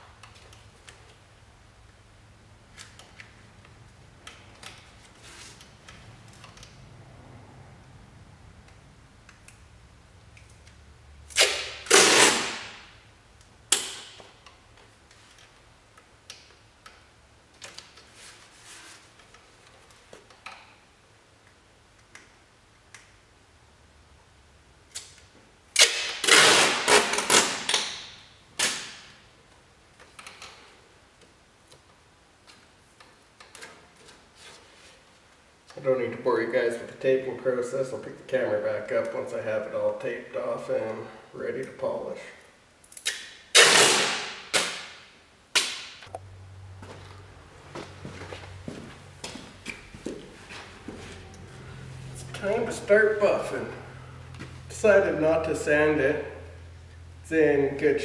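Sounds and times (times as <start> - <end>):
masking tape ripping off roll: 11.3 - 12.9, 24.9 - 29.2, 43.0 - 45.9.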